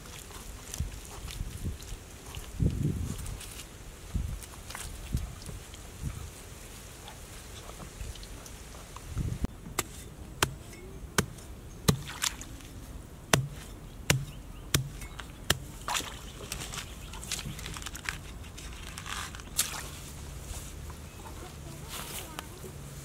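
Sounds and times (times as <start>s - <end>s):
knife chopping into turf: 9.8s - 12.3s, 13.3s - 16.1s
grass tearing and scraping: 13.3s - 23.0s.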